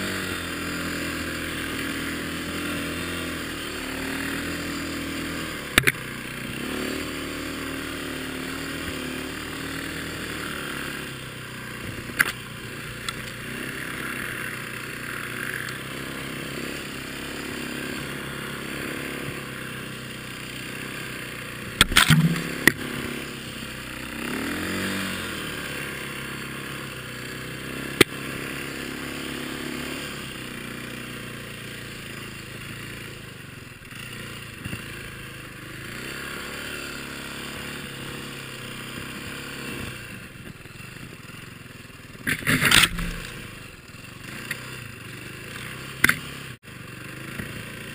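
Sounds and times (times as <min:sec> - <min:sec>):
dirt bike engine revving: 0:00.0 - 0:47.9
sharp knocks: 0:42.4 - 0:43.4.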